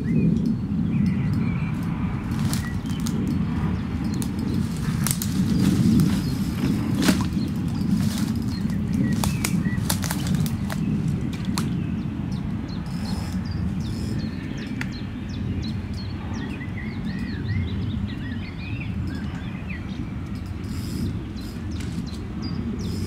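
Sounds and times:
small birds chirping: 0.0s - 23.0s
wind buffeting microphone: 0.0s - 23.0s
sharp clicks: 0.4s - 11.8s, 12.8s - 15.0s, 20.2s - 23.0s.

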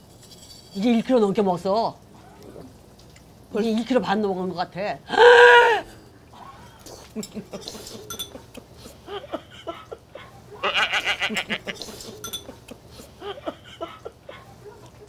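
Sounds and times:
chopsticks and dishes clinking: 6.7s - 8.7s, 11.7s - 12.9s
woman laughing: 6.9s - 14.7s.

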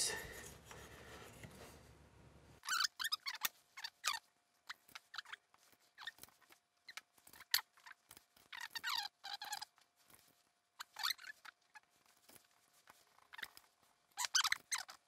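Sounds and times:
high squeaky chirps: 2.6s - 6.2s.

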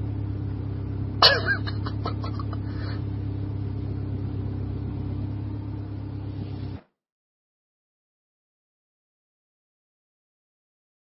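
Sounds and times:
car engine idling: 0.0s - 6.8s.

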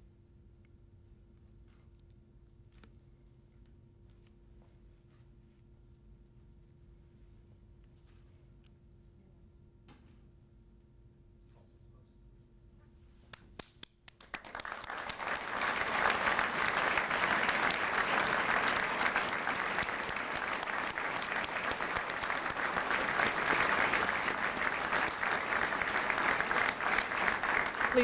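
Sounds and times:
audience applauding: 14.2s - 28.0s.

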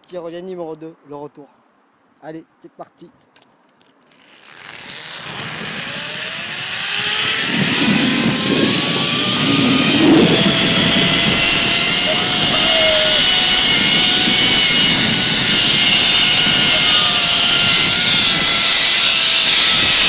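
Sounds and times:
pulley whining on steel cable: 4.1s - 20.0s
wind rushing over microphone: 4.6s - 20.0s.

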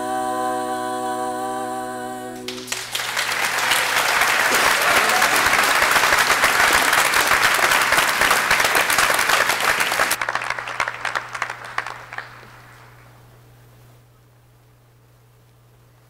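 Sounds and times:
audience applauding: 2.5s - 13.1s.

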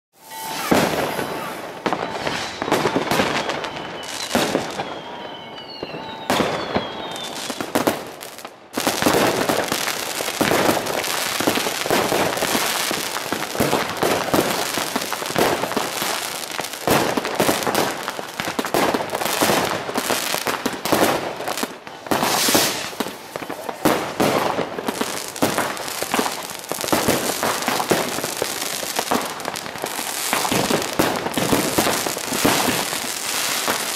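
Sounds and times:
whistles falling in pitch: 0.2s - 7.7s
fireworks bangs and crackling: 0.2s - 33.9s.

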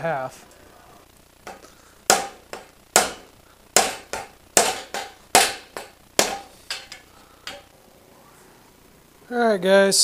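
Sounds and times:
hammer striking metal bar: 1.5s - 7.7s.

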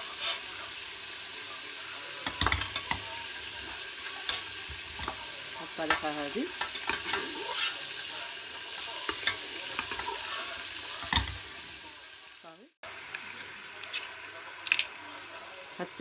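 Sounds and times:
oil sizzling in a metal pot: 0.0s - 16.0s
metal spoon scraping a pot: 0.1s - 0.4s, 5.9s - 8.0s, 9.0s - 11.4s.

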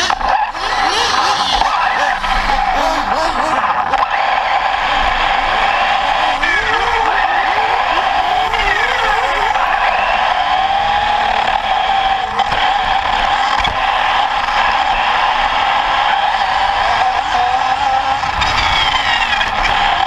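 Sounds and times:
toy car motor whining: 0.0s - 14.4s, 16.2s - 20.0s.

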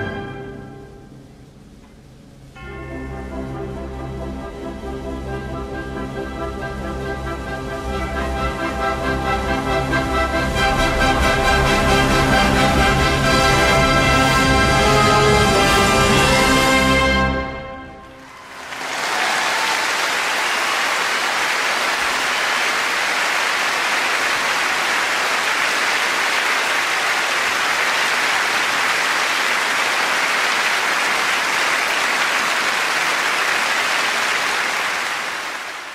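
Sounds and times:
audience applauding: 18.0s - 35.9s.

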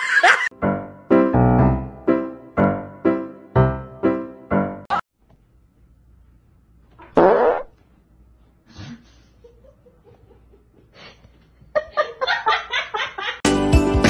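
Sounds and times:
dog farting: 7.0s - 7.8s.

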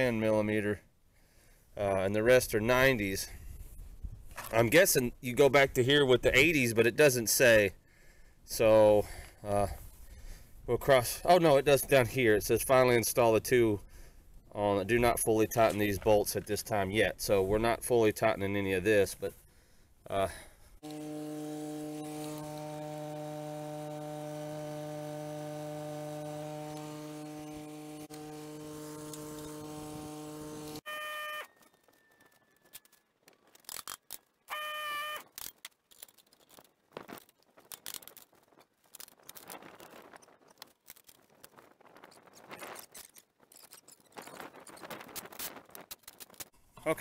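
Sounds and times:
steady hum: 20.8s - 30.8s
short pitched tones: 20.8s - 32.9s, 34.5s - 35.3s
metal parts clicking: 31.8s - 34.3s, 35.3s - 41.6s.

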